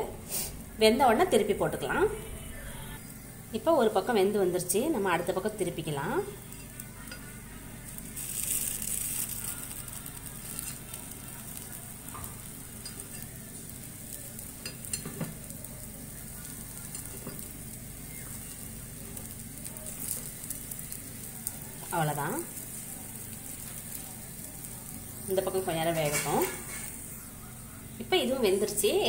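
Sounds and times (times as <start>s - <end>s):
batter sizzling in hot oil: 3.0s - 29.0s
metal spoon clicking on pan: 12.2s - 13.4s, 14.6s - 15.3s.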